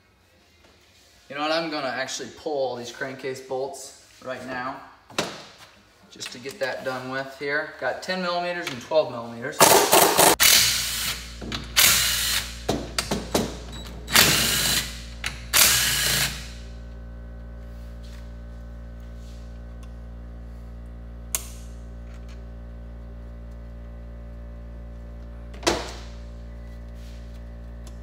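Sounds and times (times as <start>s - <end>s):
power drill spinning out bolts: 9.6s - 12.6s, 14.0s - 16.5s
low steady hum: 12.7s - 28.0s.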